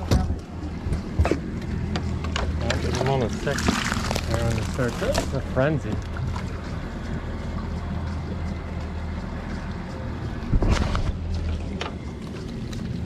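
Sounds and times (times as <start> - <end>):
outboard engines idling: 0.0 - 13.0
wind noise on microphone: 10.4 - 11.3.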